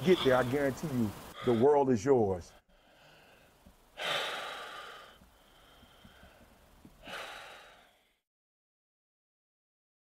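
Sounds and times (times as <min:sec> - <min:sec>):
person breathing out heavily: 0:00.0 - 0:01.8, 0:02.5 - 0:08.2.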